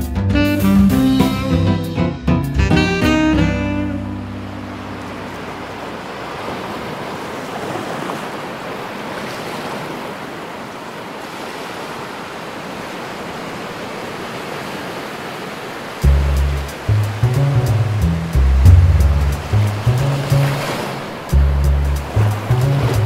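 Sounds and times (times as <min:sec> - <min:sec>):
background music: 0:00.0 - 0:05.8, 0:16.0 - 0:23.0
wind: 0:03.5 - 0:23.0
ocean surf breaking on beach: 0:04.2 - 0:23.0.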